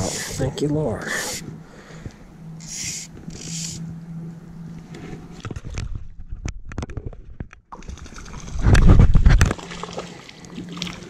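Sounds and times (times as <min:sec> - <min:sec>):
fishing rod and line clicking: 0:02.6 - 0:03.9.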